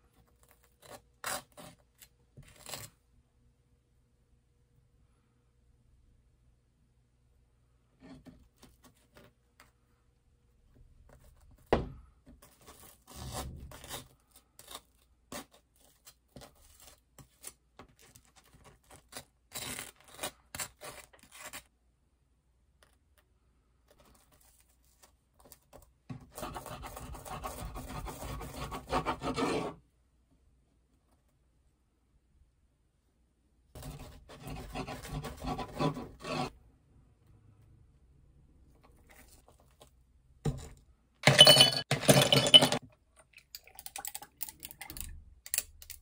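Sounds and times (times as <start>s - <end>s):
bread knife sawing toast: 33.8s - 36.5s.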